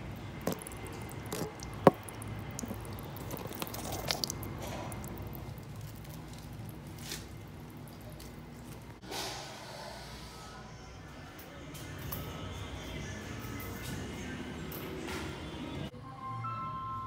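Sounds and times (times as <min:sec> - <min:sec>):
water dripping onto concrete: 0:00.4 - 0:06.9.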